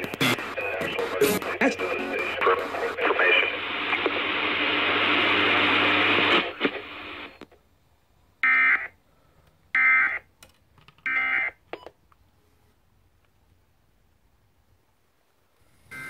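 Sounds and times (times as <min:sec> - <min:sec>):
buzzy data bursts from radio: 0:00.0 - 0:03.8
radio station audio: 0:00.0 - 0:07.6.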